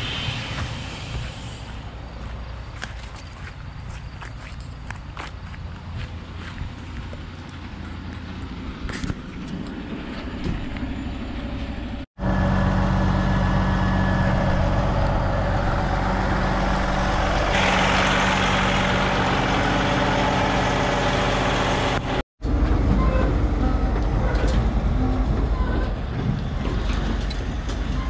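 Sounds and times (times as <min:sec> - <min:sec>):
hiss: 0:00.0 - 0:02.0
diesel truck engine hum: 0:00.0 - 0:28.0.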